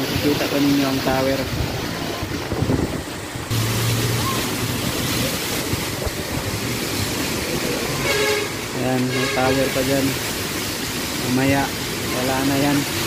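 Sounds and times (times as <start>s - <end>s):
heavy rain: 0.0s - 13.0s
strong wind rushing in gusts: 1.1s - 3.5s, 4.2s - 8.0s
wind buffeting microphone: 1.1s - 3.6s, 4.7s - 7.7s.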